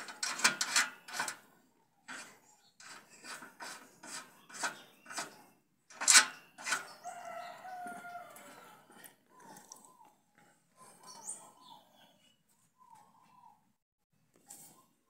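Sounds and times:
metal bracket scraping metal frame: 0.0s - 1.5s, 2.1s - 7.2s
rooster crowing: 7.0s - 8.9s.

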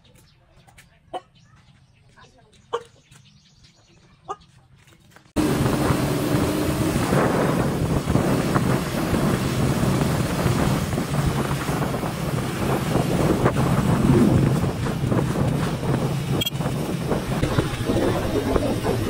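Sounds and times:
motorcycle engine drone: 5.4s - 19.0s
wind noise on microphone: 5.4s - 19.0s.

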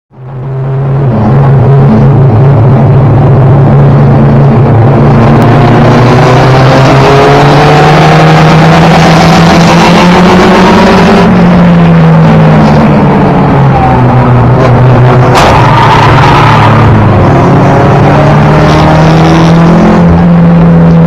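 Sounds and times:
car engine revving: 0.1s - 21.0s.

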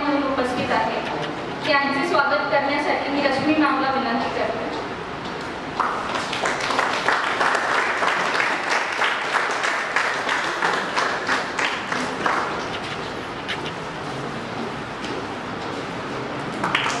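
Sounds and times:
audience applauding: 5.8s - 13.2s, 16.5s - 17.0s.

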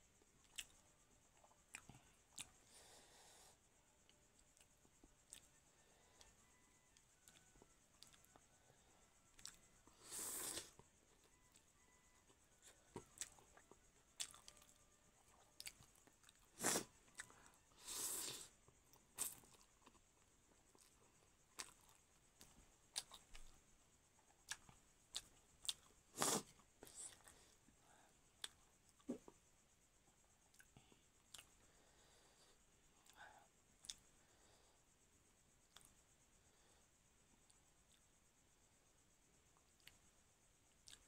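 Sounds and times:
soft chewing: 0.1s - 38.2s, 38.8s - 41.0s
person slurping noodles: 10.0s - 10.7s, 16.6s - 16.9s, 17.8s - 18.5s, 26.2s - 26.5s.

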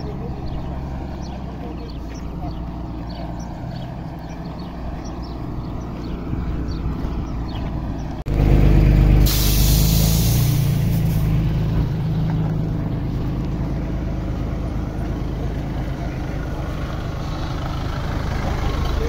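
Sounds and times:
diesel truck engine rumbling: 0.0s - 19.0s
air brakes hissing: 9.1s - 11.4s.

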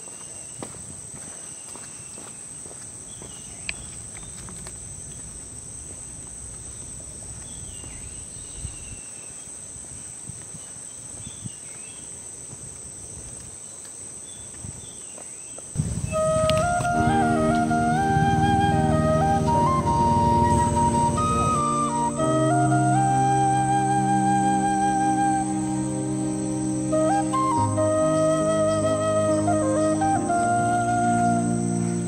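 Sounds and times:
high-pitched insect chorus: 0.0s - 32.0s
flute music: 15.8s - 32.0s.

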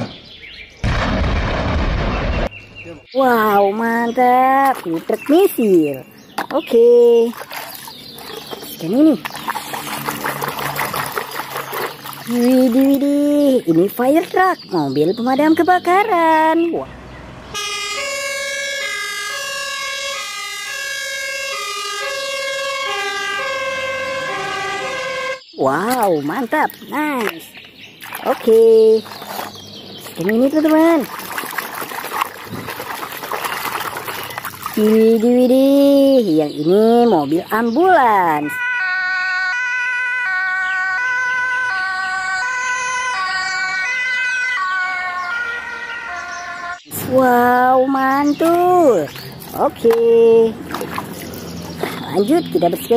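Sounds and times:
two-tone fire engine siren: 17.5s - 25.4s, 38.4s - 46.9s.

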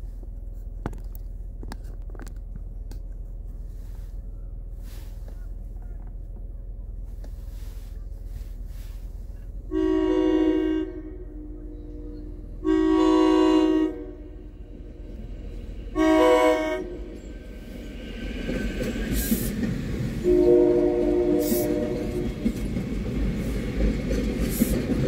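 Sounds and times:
approaching train: 0.0s - 25.0s
train horn blasts: 9.7s - 15.2s, 15.9s - 17.3s, 20.2s - 22.6s.

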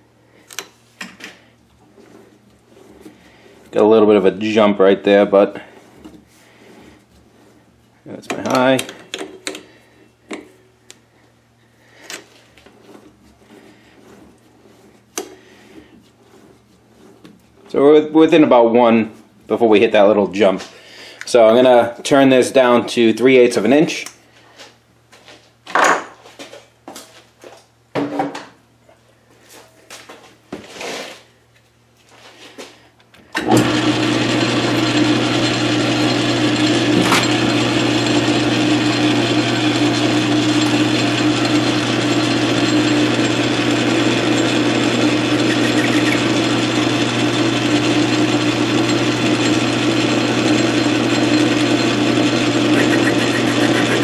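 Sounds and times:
lathe motor humming: 1.3s - 18.5s, 33.4s - 54.0s.

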